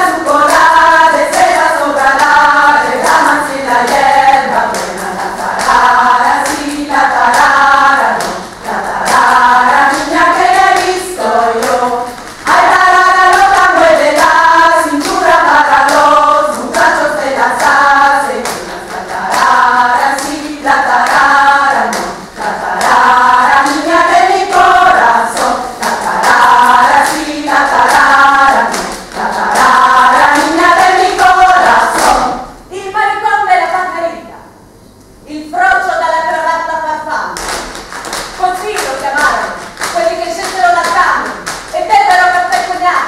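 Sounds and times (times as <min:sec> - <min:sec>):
group of voices singing: 0:00.0 - 0:32.6
hand claps: 0:00.2 - 0:32.3, 0:37.4 - 0:42.8.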